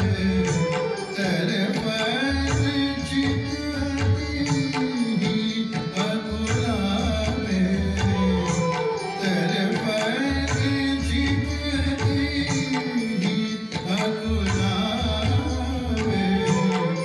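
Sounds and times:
person singing: 0.0 - 17.0
tabla strokes: 0.0 - 17.0.

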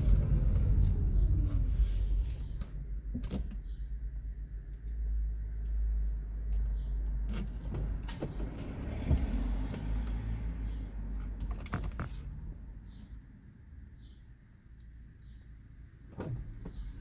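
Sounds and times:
car idling: 0.0 - 11.2.

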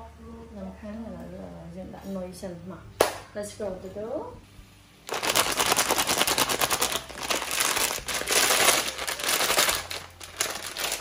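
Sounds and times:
plastic packet crinkling: 5.0 - 11.0.

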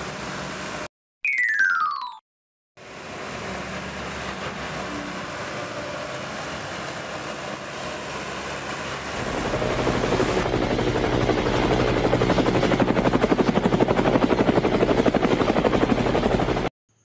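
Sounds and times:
helicopter rotor beating: 6.0 - 16.7.

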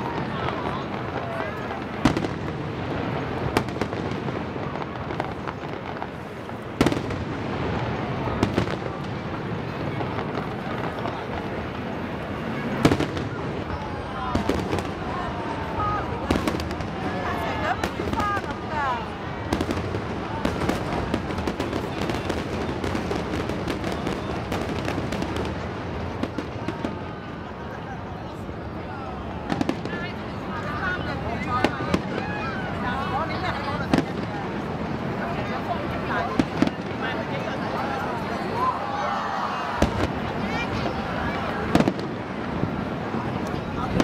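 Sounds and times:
small firework pops: 0.0 - 2.6, 3.5 - 11.9, 12.8 - 15.1, 29.4 - 30.2, 36.3 - 37.1, 39.8 - 42.6, 43.4 - 44.0
firework bangs: 0.0 - 44.0.

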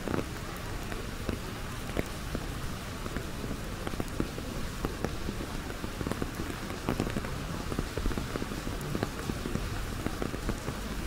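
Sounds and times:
raindrops tapping on umbrella: 0.0 - 11.0.

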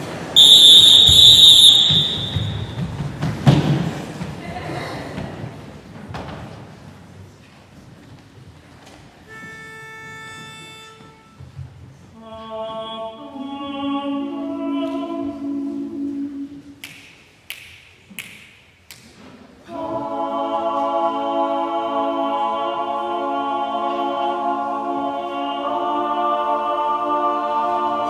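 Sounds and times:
men singing a cappella: 12.2 - 16.5, 19.7 - 28.0.

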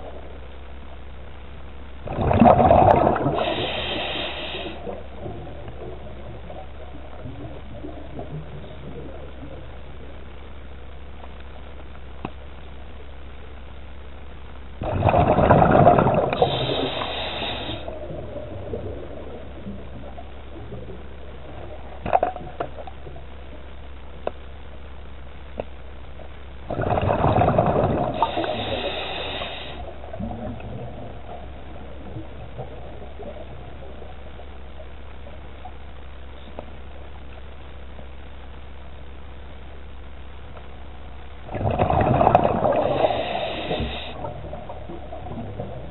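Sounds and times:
steady low hum: 0.0 - 45.9
diver breathing through regulator: 3.2 - 5.0, 16.3 - 18.0, 28.1 - 29.9, 42.6 - 44.3
faint clicks: 6.5 - 14.7, 21.5 - 26.5, 32.0 - 42.8.

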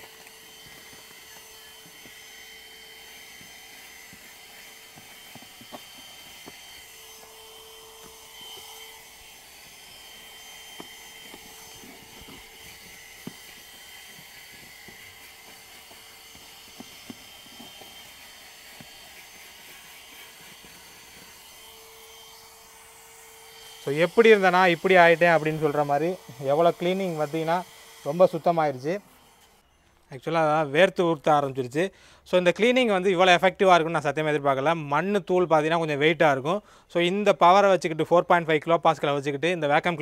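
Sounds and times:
car vacuum cleaner motor whir: 0.0 - 29.8.

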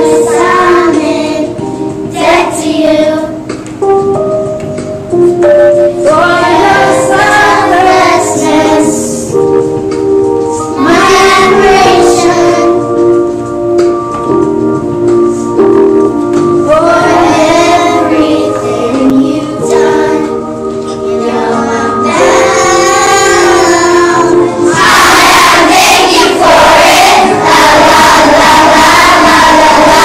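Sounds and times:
children singing: 0.0 - 3.4, 6.0 - 9.3, 10.7 - 12.8, 16.7 - 30.0
instrumental accompaniment: 0.0 - 30.0.

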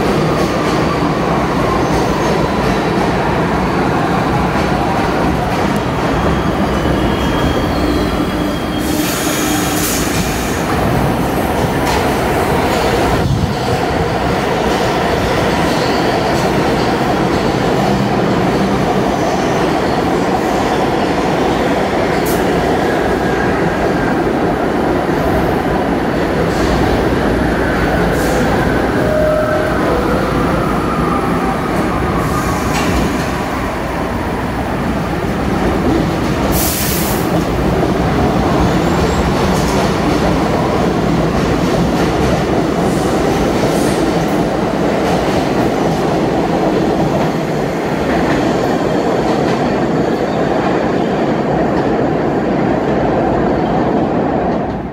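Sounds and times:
subway train wheel and track noise: 0.0 - 54.9
train approaching: 0.0 - 54.9
high hisses and squeals: 6.5 - 10.7.

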